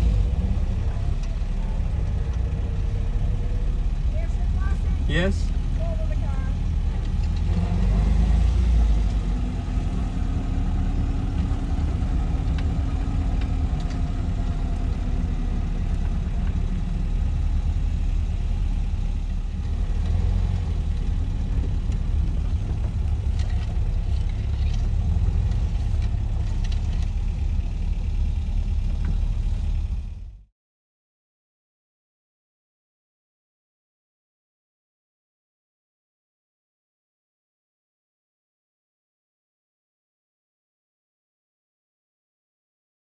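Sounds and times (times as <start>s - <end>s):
car engine rumbling: 0.0s - 30.5s.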